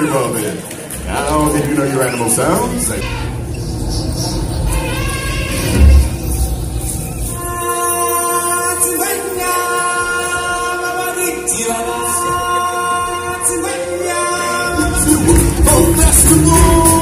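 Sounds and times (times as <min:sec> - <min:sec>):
choir singing sustained chords: 0:06.1 - 0:17.0
band with heavy low beat: 0:14.8 - 0:17.0.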